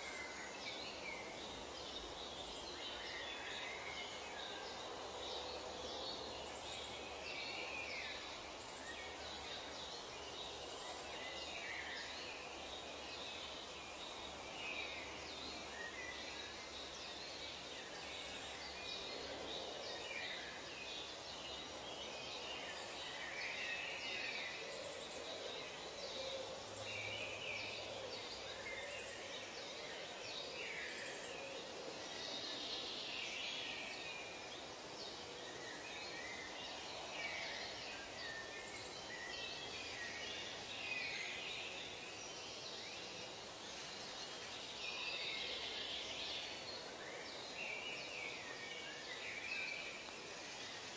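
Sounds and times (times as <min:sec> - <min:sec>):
steady background hiss: 0:00.0 - 0:50.9.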